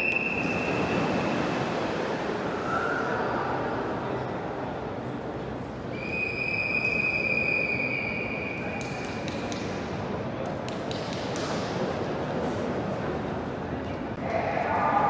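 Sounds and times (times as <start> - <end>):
long whistle blast: 0.0 - 1.0, 5.9 - 8.8
indoor pool hall hum: 0.0 - 15.0.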